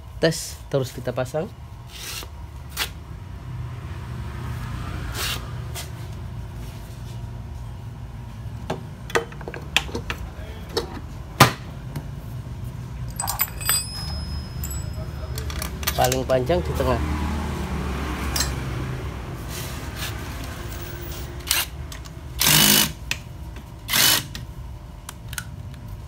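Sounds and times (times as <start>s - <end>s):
light metallic clinks: 13.1s - 16.3s.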